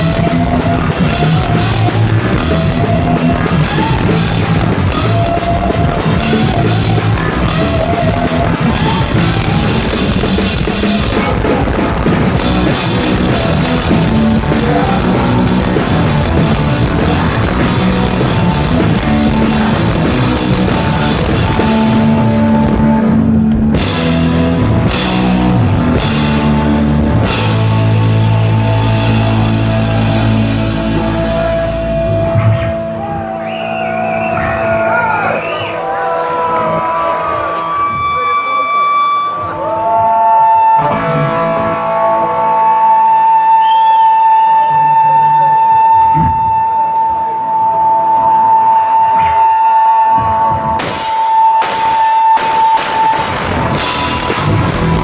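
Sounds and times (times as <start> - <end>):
drum kit: 0.0 - 35.7, 50.1 - 55.0
electric guitar: 0.0 - 55.0
live rock band playing: 0.0 - 55.0.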